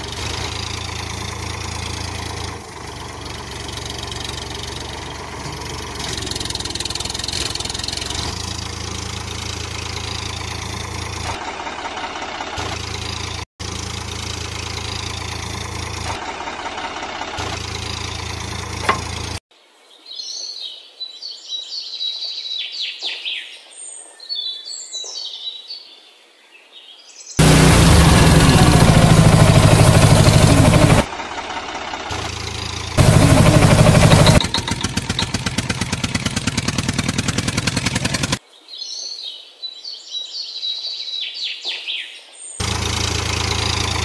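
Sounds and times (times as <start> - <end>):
tractor engine running: 0.0 - 19.4, 27.4 - 38.4, 42.6 - 44.0.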